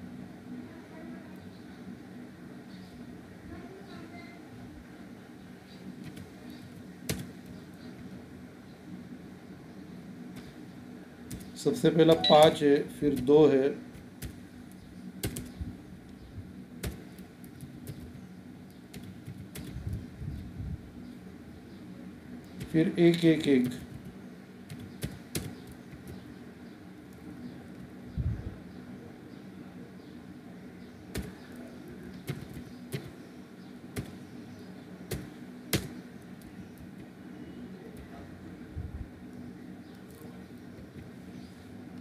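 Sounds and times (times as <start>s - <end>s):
low steady hum: 0.0s - 42.0s
keyboard keystrokes: 12.1s - 13.3s
computer keyboard keystrokes: 18.9s - 19.8s, 24.7s - 26.2s, 32.2s - 33.1s.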